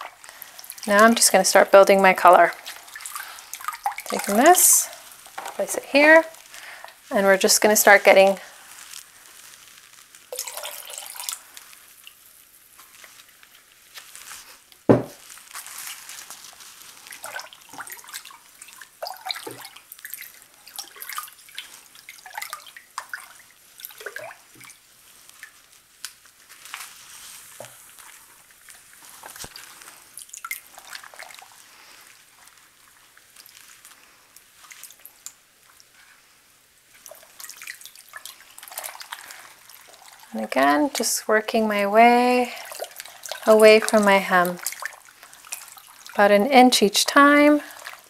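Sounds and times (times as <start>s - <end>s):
water splashing and dripping in tub: 0.0s - 48.0s
sharp knock: 14.9s - 15.2s.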